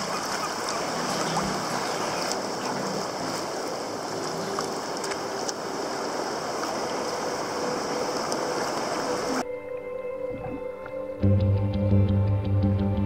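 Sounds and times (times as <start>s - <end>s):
sea water splashing around kayak: 0.0s - 9.4s.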